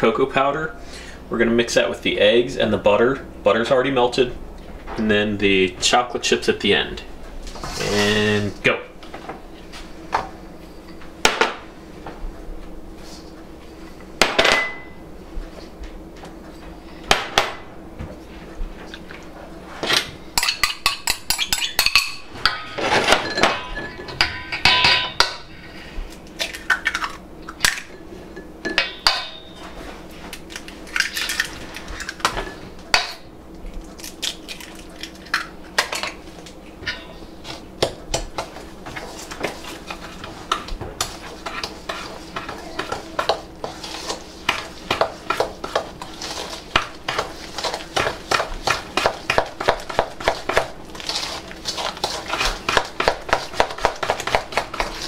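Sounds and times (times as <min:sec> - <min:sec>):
ceramic bowls clinking on metal bowl: 0:20.4 - 0:25.4
utensil stirring: 0:36.1 - 0:55.0.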